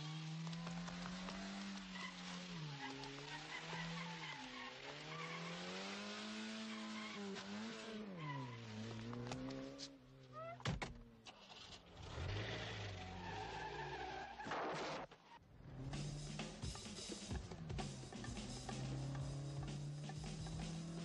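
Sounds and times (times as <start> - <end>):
car engine revving: 0.0 - 10.2, 15.5 - 21.0
tyre squeal: 1.4 - 5.8, 6.5 - 9.0, 12.2 - 14.5.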